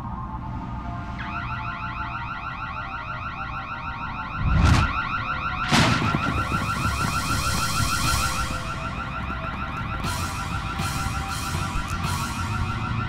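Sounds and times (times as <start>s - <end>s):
burglar alarm warbling: 4.1s - 12.7s.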